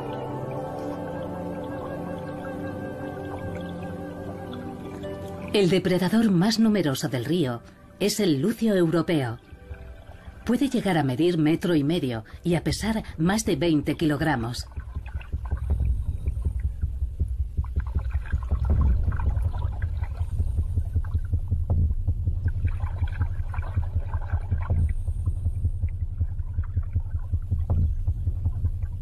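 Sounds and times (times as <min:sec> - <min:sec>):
faint clicks and bubbly crackles: 0:00.0 - 0:29.0
underwater fluttering rumble: 0:14.6 - 0:29.0.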